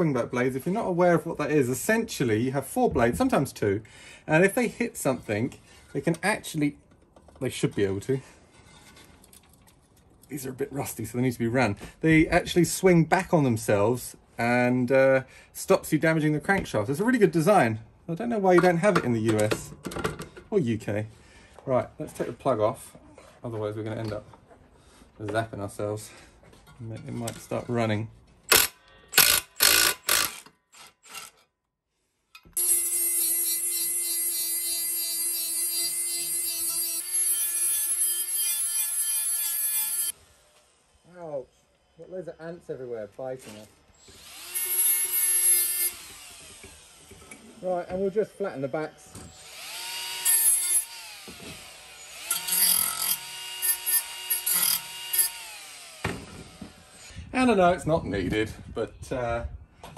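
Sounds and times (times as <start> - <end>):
grinder whining: 44.0 - 57.1.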